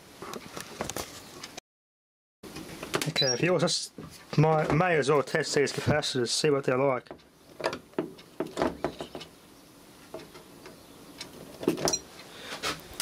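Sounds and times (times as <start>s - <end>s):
faint high chirp: 3.1s - 3.5s.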